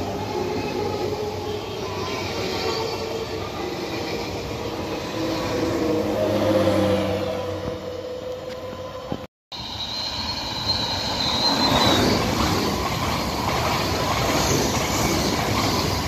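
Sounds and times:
train wheels rumbling on rails: 0.0s - 16.0s.

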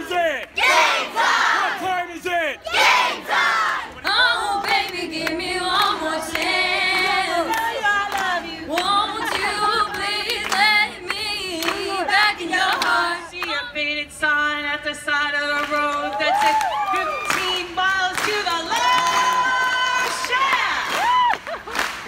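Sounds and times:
woman singing into a microphone: 4.1s - 20.6s.

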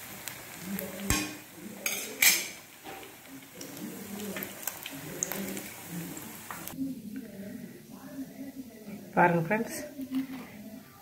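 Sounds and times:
oil sizzling: 0.0s - 7.0s.

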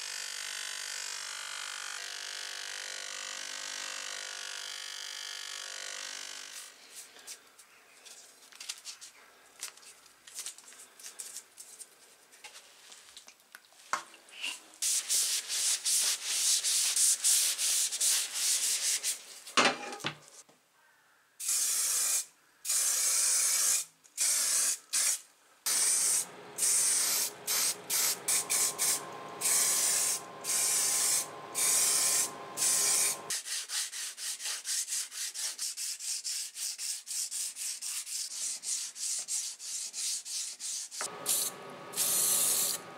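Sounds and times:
spray paint hissing: 14.8s - 19.2s, 21.4s - 34.6s, 40.9s - 42.8s
sandpaper rubbing: 14.8s - 19.4s, 25.7s - 42.8s
steady hum: 25.7s - 33.3s.

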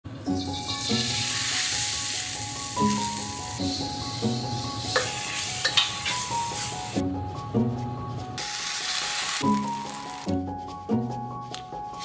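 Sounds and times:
noodles sizzling in a wok: 0.2s - 7.0s, 8.4s - 10.3s.

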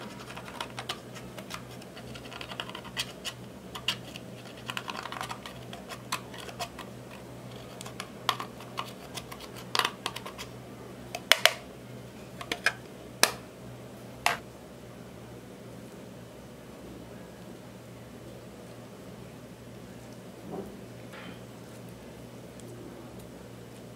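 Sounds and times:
metal tool scraping plastic palette: 0.0s - 10.5s, 12.4s - 12.8s
low steady hum: 0.0s - 23.9s
plastic case clicking: 11.2s - 11.6s, 12.4s - 13.4s.

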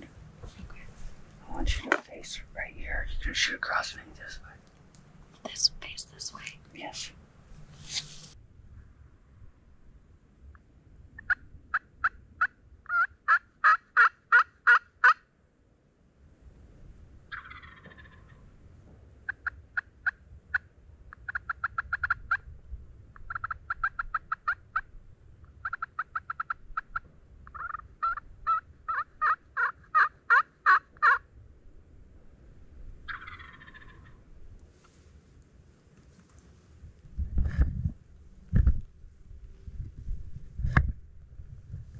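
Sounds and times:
turkey gobbling: 11.2s - 15.2s, 17.3s - 18.4s, 19.3s - 22.4s, 23.2s - 24.9s, 25.6s - 31.2s, 33.1s - 34.2s
turkeys yelping: 11.2s - 15.2s, 17.3s - 18.4s, 25.6s - 31.2s, 33.1s - 34.2s.

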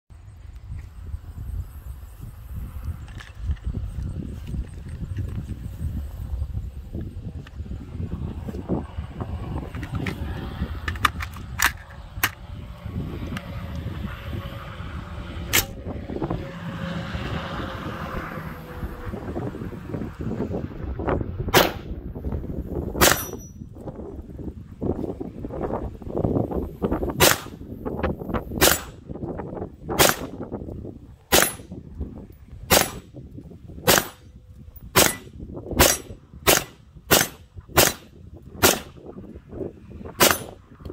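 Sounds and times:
low rumble: 0.1s - 40.9s
rifle gunshots: 21.5s - 21.9s, 23.0s - 23.5s, 27.2s - 27.6s, 28.6s - 29.0s, 30.0s - 30.4s, 31.3s - 31.7s, 32.7s - 33.1s, 33.8s - 34.3s, 35.0s - 39.0s, 40.2s - 40.6s.

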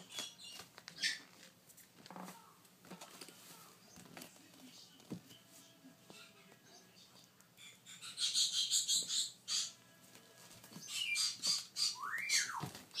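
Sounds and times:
parrot chicks begging calls: 0.0s - 1.3s, 7.6s - 9.8s, 10.7s - 13.0s.

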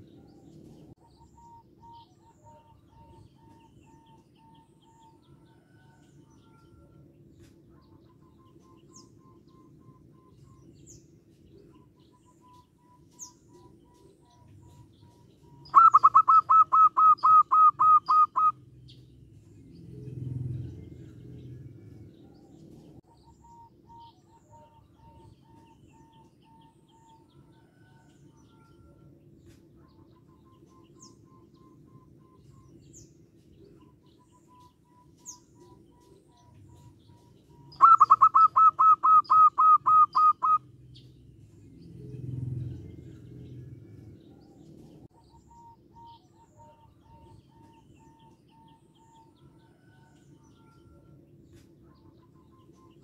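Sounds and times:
dove calling in clipped notes: 11.6s - 19.0s, 33.7s - 41.1s.

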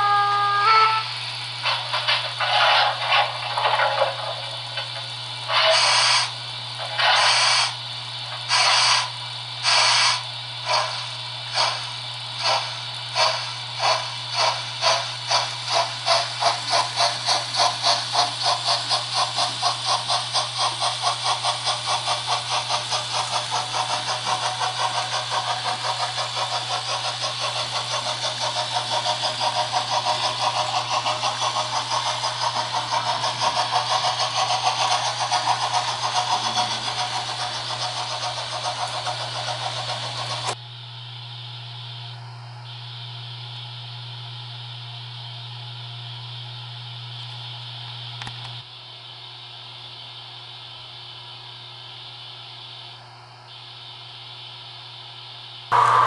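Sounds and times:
model steam locomotive chuffing: 0.0s - 40.6s, 55.7s - 56.0s.

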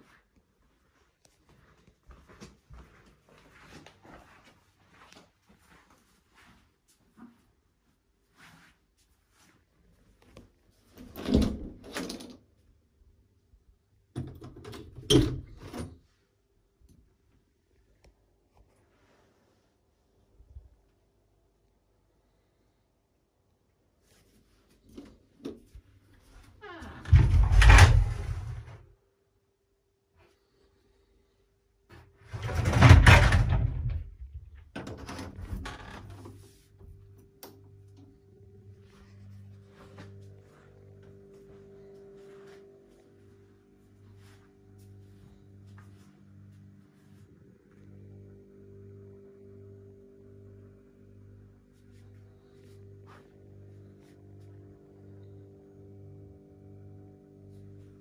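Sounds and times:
faint steady hum: 9.0s - 58.0s.

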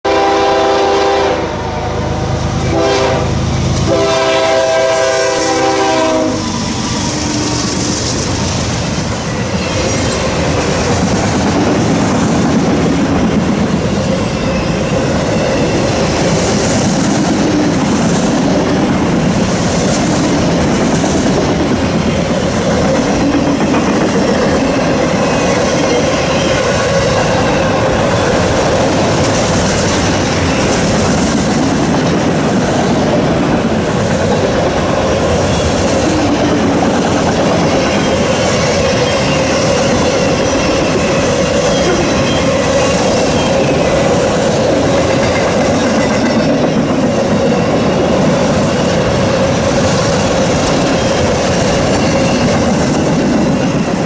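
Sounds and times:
locomotive horn blasts: 0.1s - 6.5s
train rolling rumble: 0.1s - 54.0s
wheels clacking over rail joints: 5.8s - 54.0s.

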